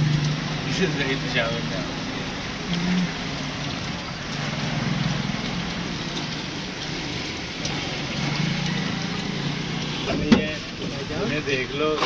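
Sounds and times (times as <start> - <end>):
chips sizzling in hot oil: 0.0 - 12.0.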